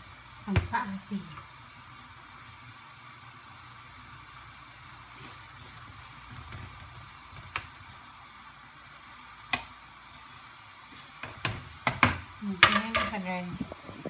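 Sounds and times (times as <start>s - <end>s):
spatula stirring in frying pan: 4.8s - 13.4s.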